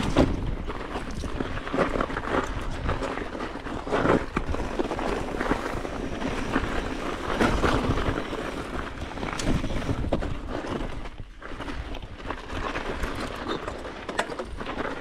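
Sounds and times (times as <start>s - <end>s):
wind on microphone: 0.0s - 11.4s
bike knocks and rattles: 0.0s - 15.0s
bike tyre rumble on dirt: 0.0s - 15.0s.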